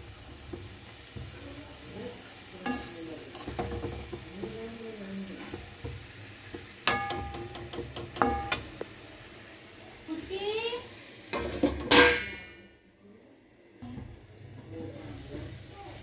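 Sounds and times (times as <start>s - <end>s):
sharp metallic clanks: 6.9s - 8.6s
ladle scraping a pan: 11.3s - 12.3s.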